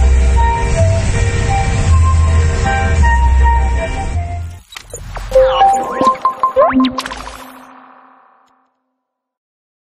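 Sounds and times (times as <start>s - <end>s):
electronic logo jingle: 5.0s - 8.6s.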